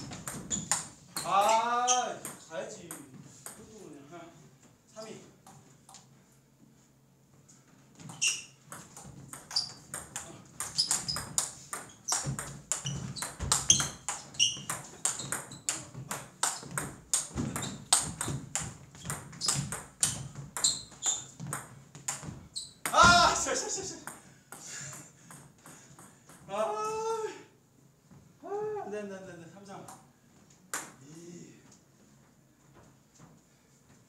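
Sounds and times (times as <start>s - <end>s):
ball bouncing on table: 0.0s - 1.4s, 8.0s - 23.4s.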